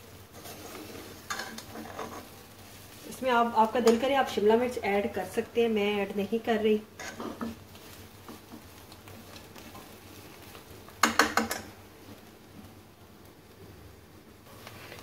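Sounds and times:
spatula scraping a frying pan: 0.3 - 4.1, 7.0 - 11.7.

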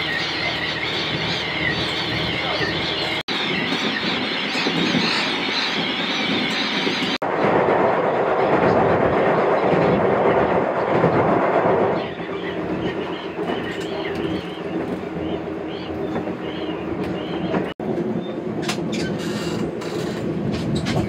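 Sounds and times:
train wheels running: 0.0 - 7.2
train rattling over bridge: 0.0 - 21.0.

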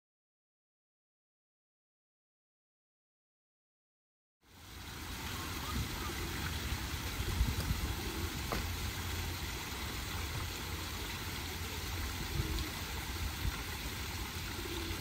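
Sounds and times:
waterfall splashing over rocks: 4.5 - 15.0.

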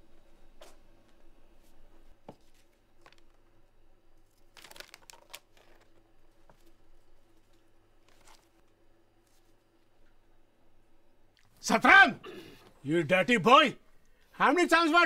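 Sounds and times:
low steady hum: 0.0 - 15.0
magazines rustling and tapping: 2.2 - 3.6, 4.2 - 9.8.

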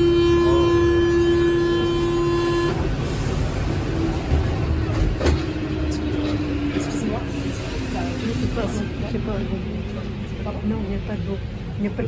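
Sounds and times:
train door warning buzzer: 0.0 - 2.9
low train rumble: 0.0 - 12.0.

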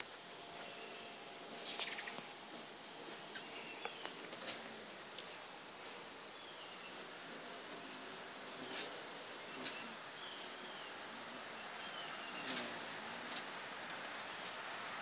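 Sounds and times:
hummingbird chattering: 1.5 - 2.2, 3.0 - 4.0, 5.8 - 7.0, 7.8 - 11.0
hummingbird high chips: 1.5 - 2.2.

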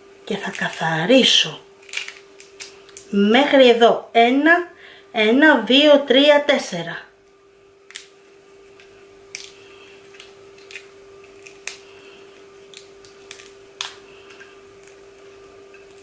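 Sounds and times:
faint steady hum: 0.0 - 16.0
shrimp shell cracking: 1.8 - 3.1, 7.9 - 8.2, 8.8 - 16.0.

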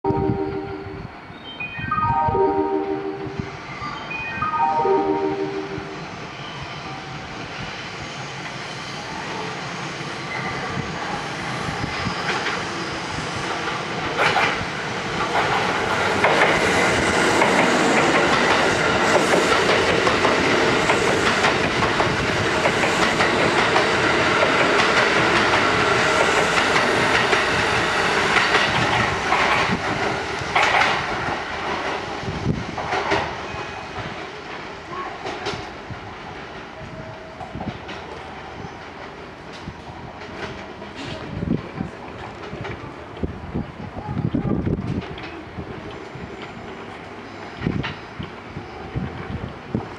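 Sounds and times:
train wheels rumbling: 6.1 - 49.9.

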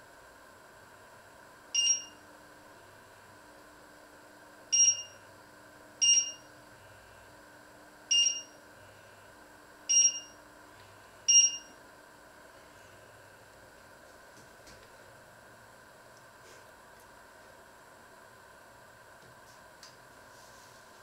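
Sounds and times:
short high beeps: 1.8 - 2.2, 4.8 - 5.2, 6.0 - 6.4, 8.1 - 8.6, 9.9 - 10.4, 11.3 - 11.7.

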